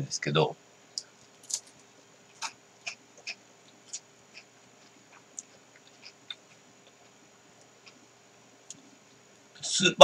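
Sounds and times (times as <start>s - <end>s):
crunchy chewing of ice cream cone: 1.3s - 8.2s.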